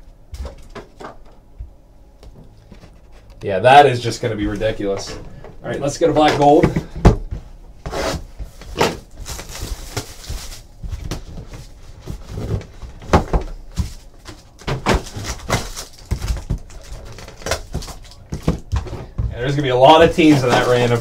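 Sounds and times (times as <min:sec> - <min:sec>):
card packs knocking and scraping: 0:04.5 - 0:07.2, 0:07.9 - 0:21.0.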